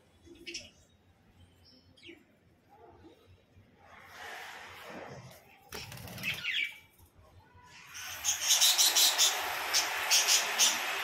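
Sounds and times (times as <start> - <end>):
bird wings flapping: 5.7 - 6.6.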